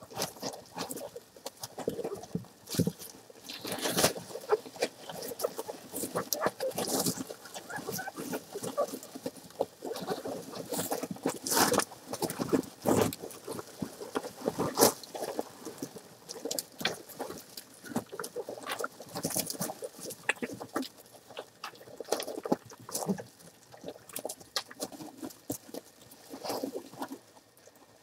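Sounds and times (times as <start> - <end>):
straw rustling and crackling: 0.0 - 28.0
high puppy squeaks: 7.4 - 8.9.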